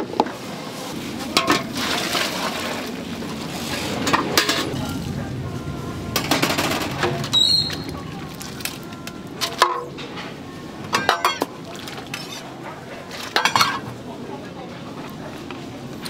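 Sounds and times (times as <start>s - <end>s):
pot boiling and bubbling: 0.0s - 14.1s
metal utensils knocking on pot: 10.9s - 11.5s, 13.4s - 13.8s.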